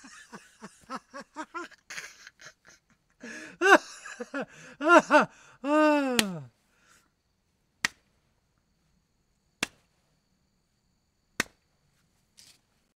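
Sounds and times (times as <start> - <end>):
hand slapping a knee: 6.1 - 6.5, 7.8 - 8.2, 9.6 - 10.0, 11.4 - 11.8.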